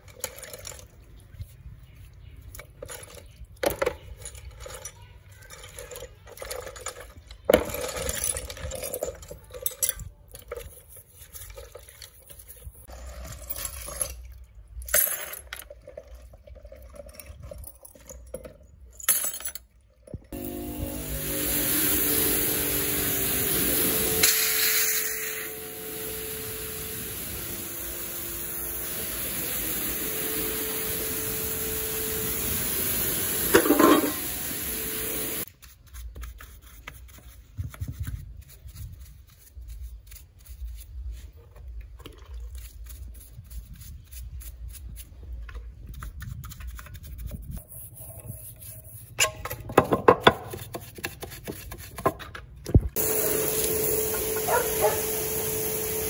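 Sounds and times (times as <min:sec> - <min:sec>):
pressure washer spraying water: 0:20.4 - 0:35.5, 0:53.0 - 0:56.0
hand brush scrubbing metal: 0:20.4 - 0:41.4, 0:42.5 - 0:52.3, 0:53.0 - 0:56.0.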